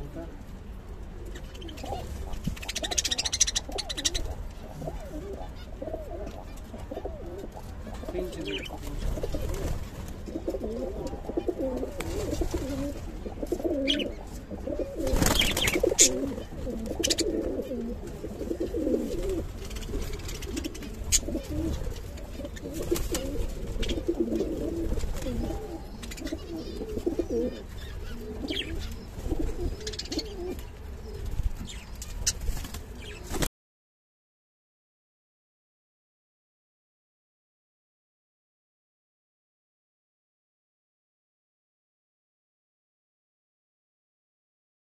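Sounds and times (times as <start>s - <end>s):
pigeons cooing: 0.7s - 33.5s.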